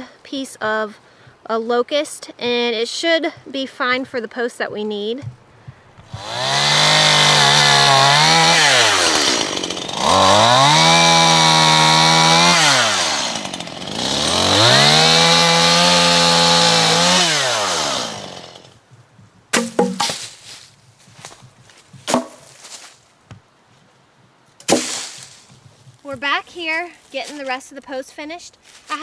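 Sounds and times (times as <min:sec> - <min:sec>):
chainsaw revving: 0:06.1 - 0:18.7
sharp knocks: 0:19.5 - 0:20.3, 0:22.1 - 0:22.4, 0:24.6 - 0:25.2.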